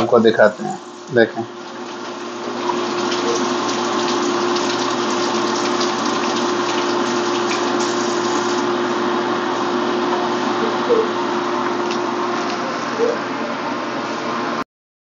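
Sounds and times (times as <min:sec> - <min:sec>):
constant hum: 0:00.0 - 0:14.1
greens sizzling in a frying pan: 0:02.0 - 0:08.7.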